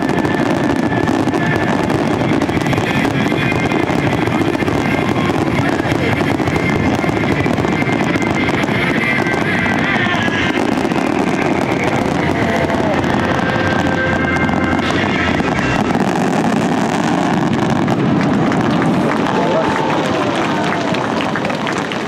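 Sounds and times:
fireworks bursting and crackling: 0:00.0 - 0:22.0.

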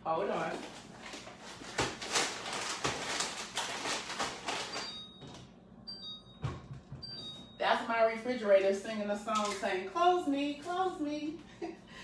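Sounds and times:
rustling and handling noise: 0:00.2 - 0:05.5
refrigerator alarm beeping: 0:04.2 - 0:08.8.

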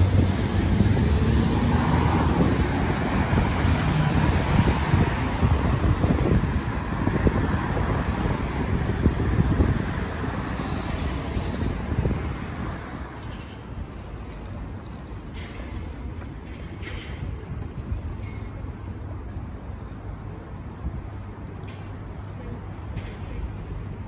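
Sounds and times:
wind buffeting microphone: 0:00.0 - 0:13.1
cars and vans passing: 0:00.0 - 0:24.0.

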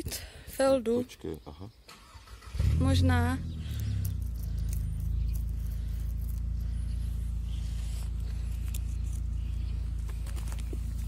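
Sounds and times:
low hum: 0:02.6 - 0:11.0.

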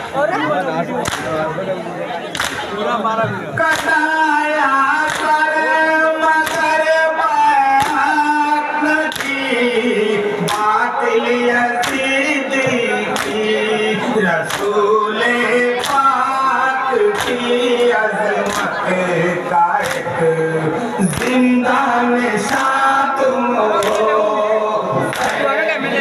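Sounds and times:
men singing a lament: 0:03.2 - 0:26.0
chest-beating slaps: 0:18.4 - 0:18.8.

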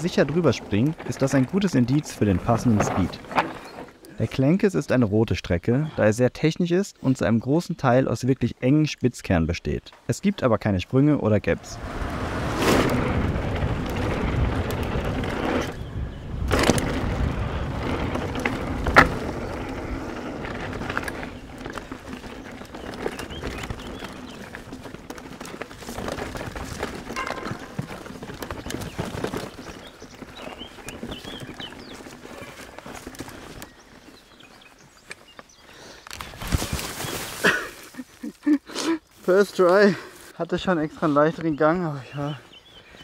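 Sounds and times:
bike rattles and knocks: 0:00.0 - 0:04.0, 0:11.8 - 0:37.9
bike tyre noise on dirt: 0:00.0 - 0:06.0, 0:10.8 - 0:38.4.

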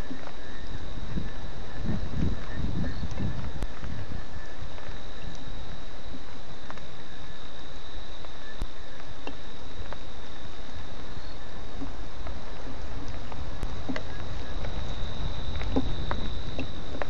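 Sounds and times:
crickets trilling: 0:00.0 - 0:17.0
steady rain: 0:00.0 - 0:17.0
raindrops ticking: 0:11.7 - 0:17.0.

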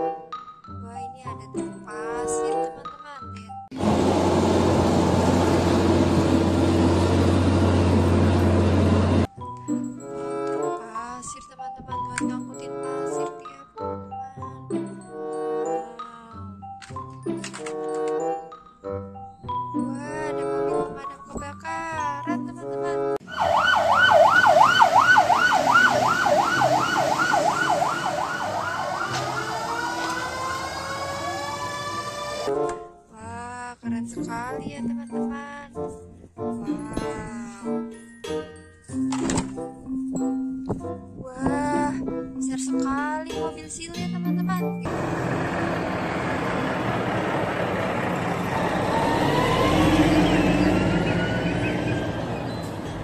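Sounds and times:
vehicle engine and road noise: 0:03.7 - 0:09.3, 0:23.2 - 0:32.5, 0:44.8 - 0:53.0
electronic yelp siren: 0:23.2 - 0:32.5, 0:48.6 - 0:52.8
rising steady tones: 0:23.2 - 0:32.5, 0:44.9 - 0:53.0.

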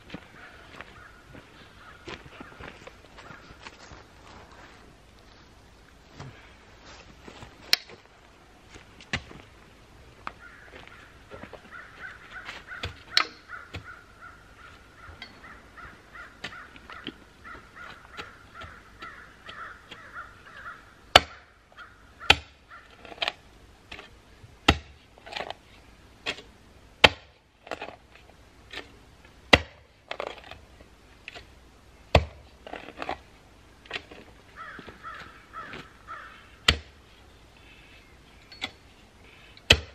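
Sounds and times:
post-hole digger striking ground: 0:22.2 - 0:25.6, 0:26.2 - 0:28.0, 0:28.7 - 0:30.6, 0:32.1 - 0:33.2, 0:36.7 - 0:37.0, 0:39.7 - 0:39.9.

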